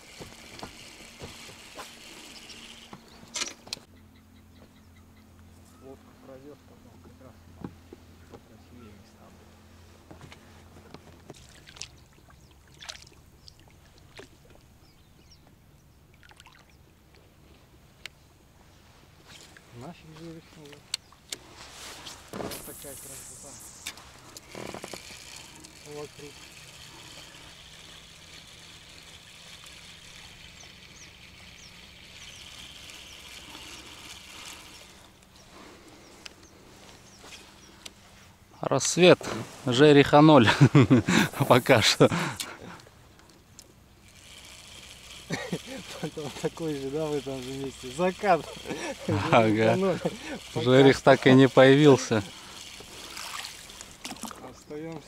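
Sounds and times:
low steady background noise: 0:00.0 - 0:55.0
steady hiss: 0:21.5 - 0:30.1, 0:37.4 - 0:42.8, 0:44.2 - 0:55.0
water splashing around boat: 0:52.4 - 0:54.6.

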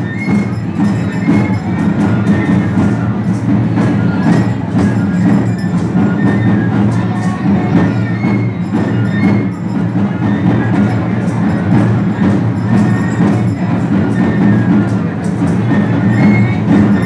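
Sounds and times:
drum beat: 0:00.0 - 0:17.0.

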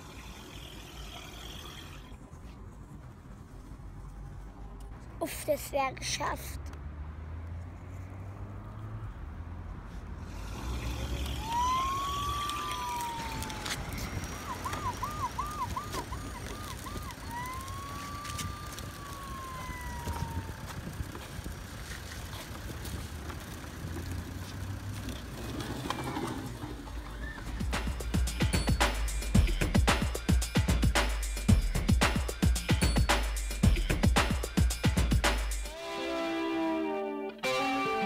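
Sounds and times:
toy siren wailing and yelping: 0:11.4 - 0:20.7.

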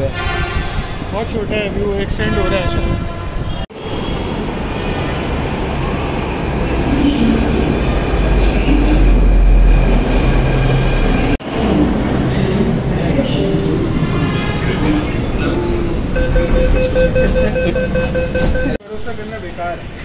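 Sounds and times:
train rumbling to a stop: 0:03.8 - 0:18.8.

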